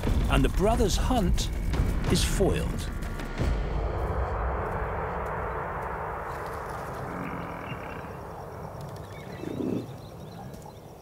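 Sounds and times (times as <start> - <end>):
low animal call: 6.8 - 10.7
faint bird chirps: 7.2 - 11.0.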